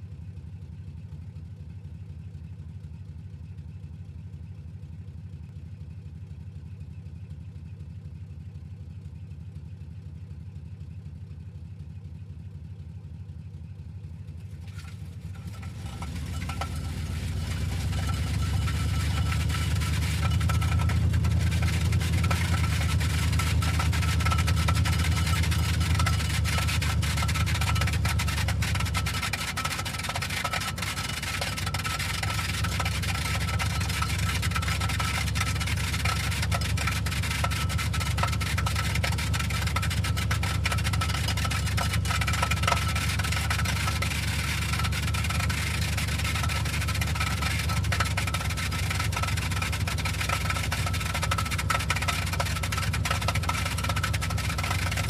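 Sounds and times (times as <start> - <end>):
car engine idling and driving off: 0.0 - 55.0
muffler scraping on road: 14.6 - 55.0.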